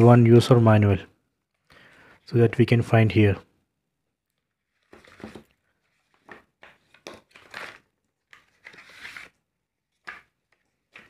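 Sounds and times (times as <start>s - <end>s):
paper sleeve rustling against cardboard: 4.6s - 9.4s.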